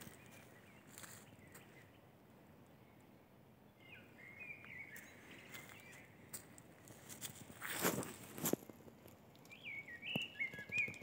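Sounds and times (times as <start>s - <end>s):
faint bird chirping: 0.0s - 6.6s, 9.4s - 11.0s.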